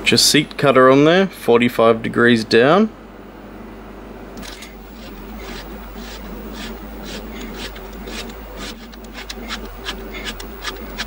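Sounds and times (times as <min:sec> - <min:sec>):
valve seat cutter scraping metal: 0:04.4 - 0:11.0.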